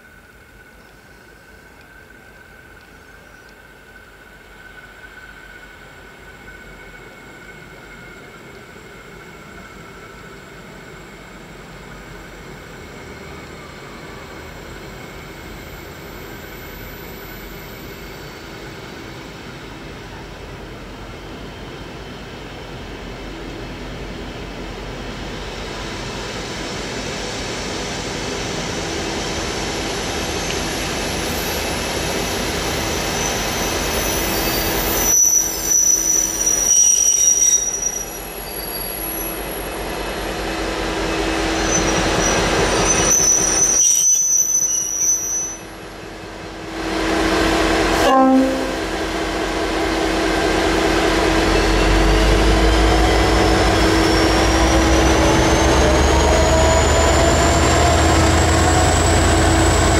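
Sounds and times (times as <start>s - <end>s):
diesel locomotive approaching: 0.0s - 59.9s
wheel and brake squeal: 30.7s - 40.4s, 41.0s - 45.9s.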